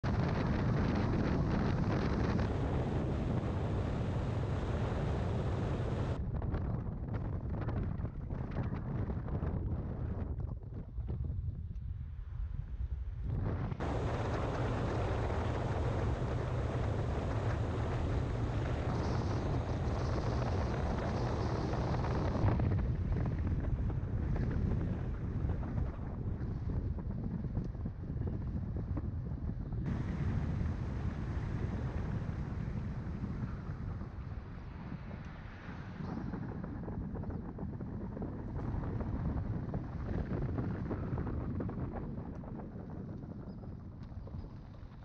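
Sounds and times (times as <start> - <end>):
wind buffeting microphone: 0.0 - 45.0
car road noise: 13.8 - 22.4, 29.9 - 36.2.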